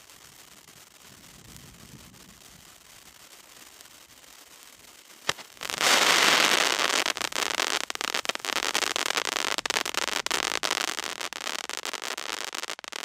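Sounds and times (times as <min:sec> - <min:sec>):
firework fountain hissing and crackling: 0:00.0 - 0:13.0
firework pop: 0:05.2 - 0:06.0.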